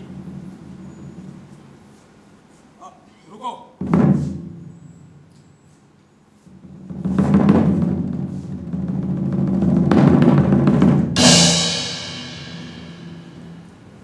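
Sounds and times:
drum roll: 0.0 - 1.3, 3.8 - 4.6, 6.5 - 14.0
cymbal crash ringing: 11.2 - 13.9.

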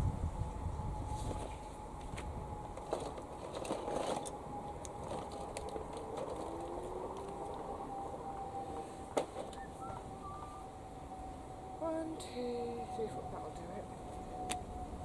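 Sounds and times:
faint steady high tone: 6.8 - 15.0.

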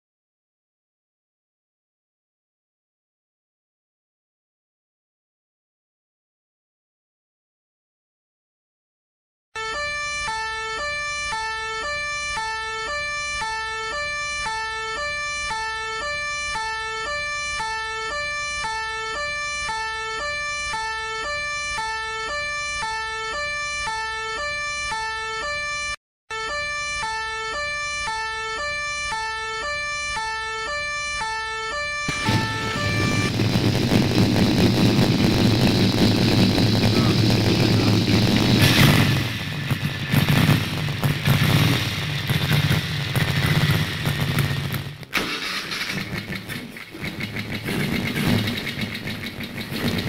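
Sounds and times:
two-tone siren: 9.6 - 44.1
motorcycle engine running: 32.1 - 45.0, 45.7 - 50.0.

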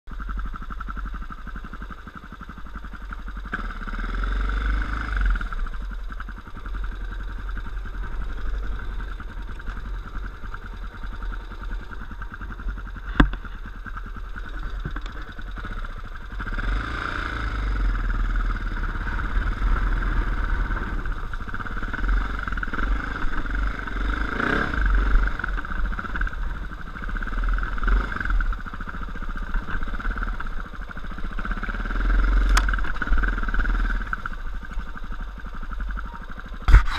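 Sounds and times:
dirt bike engine running: 0.1 - 36.9.

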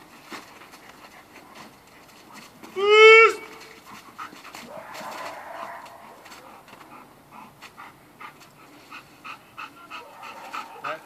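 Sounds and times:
dog panting: 3.6 - 11.0.

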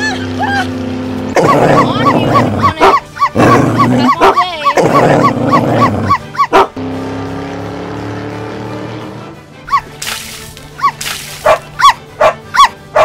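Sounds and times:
background music: 0.0 - 13.0
dog barking rapidly: 1.4 - 6.8, 9.7 - 9.9, 10.8 - 13.0.

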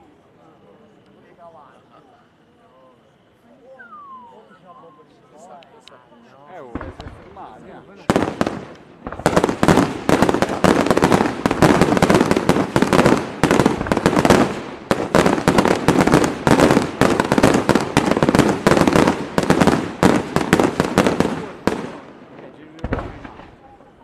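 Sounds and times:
fireworks banging: 6.6 - 24.0.

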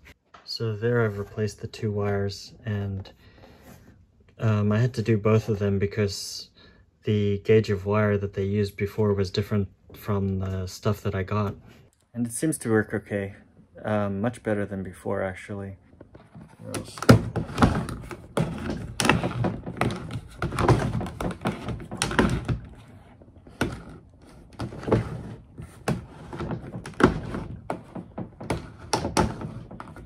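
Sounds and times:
plastic clunks and knocks: 15.9 - 30.0.

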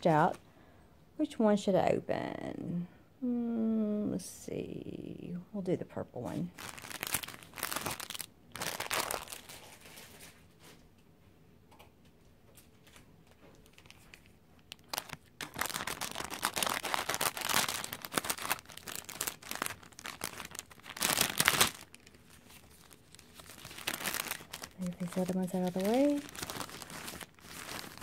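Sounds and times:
plastic packaging crinkling: 6.5 - 10.8, 12.8 - 28.0.

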